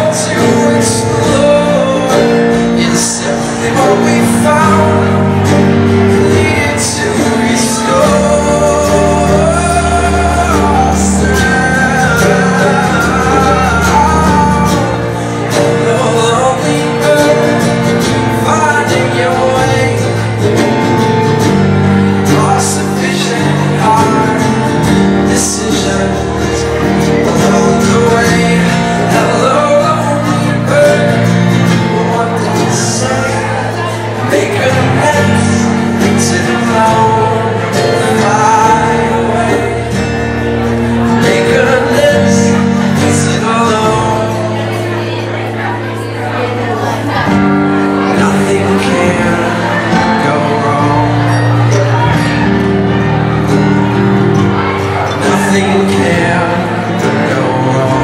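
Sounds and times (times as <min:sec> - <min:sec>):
keyboard: 0:00.0 - 0:58.0
man singing: 0:00.0 - 0:58.0
plucked strings: 0:00.0 - 0:58.0.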